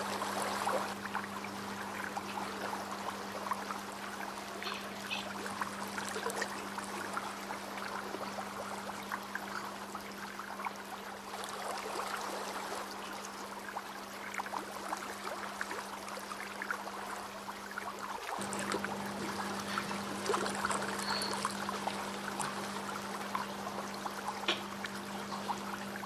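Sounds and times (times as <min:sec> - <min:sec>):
steady low hum: 0:00.0 - 0:26.0
trickling water hiss: 0:00.0 - 0:26.0.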